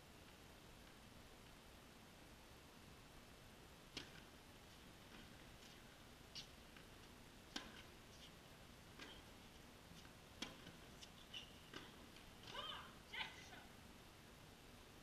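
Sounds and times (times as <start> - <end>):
racket strikes and ball bounces: 3.9 - 4.3, 5.1 - 9.4, 10.0 - 13.0
shoe squeals: 6.4 - 6.6, 11.0 - 11.7.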